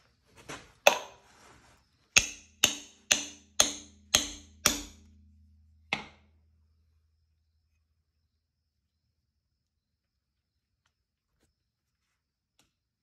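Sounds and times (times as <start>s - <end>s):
hammer striking metal bolt: 2.2s - 5.1s, 5.9s - 6.2s.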